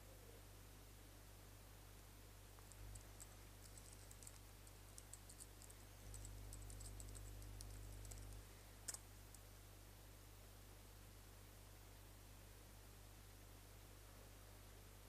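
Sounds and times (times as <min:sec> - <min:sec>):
keyboard typing: 0:02.6 - 0:09.4.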